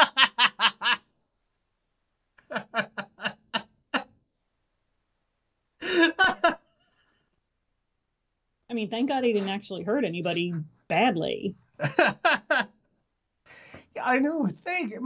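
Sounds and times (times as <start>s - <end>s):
man laughing: 0.0s - 1.0s, 2.4s - 4.1s, 5.8s - 6.7s, 11.8s - 12.7s.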